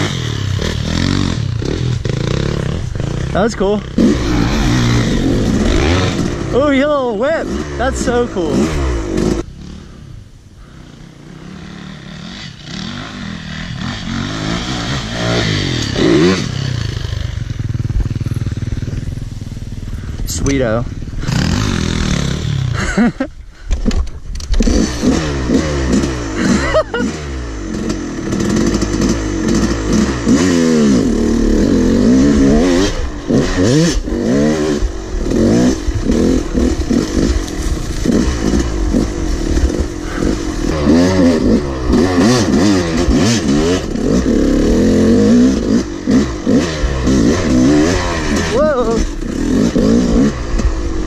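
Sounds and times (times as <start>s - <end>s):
dirt bike engine revving: 0.0s - 23.3s, 24.4s - 51.0s.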